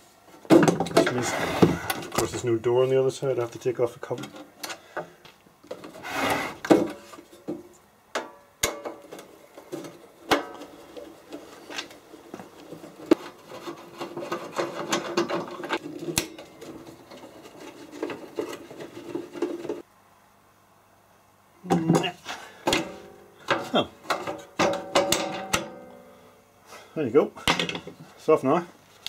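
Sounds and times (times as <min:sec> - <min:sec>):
metal panel scraping: 0:01.0 - 0:02.5, 0:12.5 - 0:19.8.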